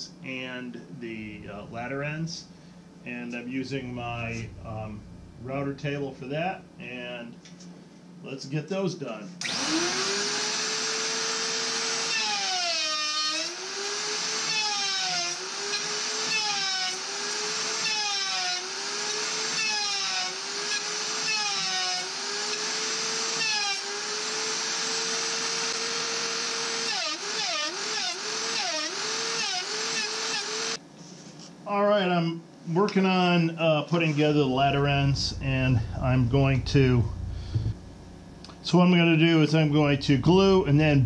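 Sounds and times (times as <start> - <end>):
router cutting wood: 9.4 - 30.8.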